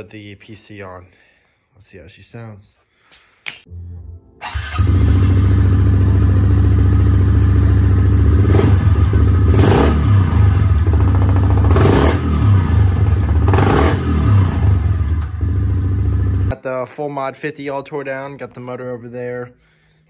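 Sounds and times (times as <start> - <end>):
motorcycle engine idling and revving: 4.5 - 16.5.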